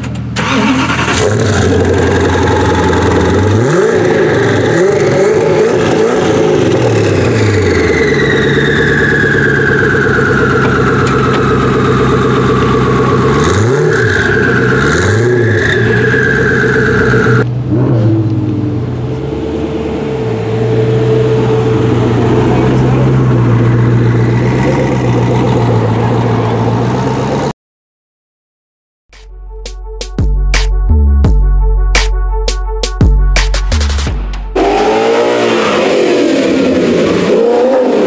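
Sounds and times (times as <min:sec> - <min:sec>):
car engine revving: 0:00.1 - 0:27.5, 0:33.4 - 0:38.0
engine whine falling in pitch: 0:01.2 - 0:27.5.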